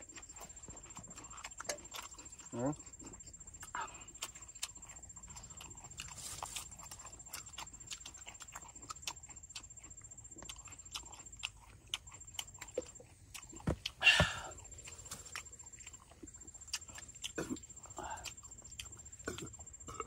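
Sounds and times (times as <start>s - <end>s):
chewing and lip-smacking: 0.0s - 20.0s.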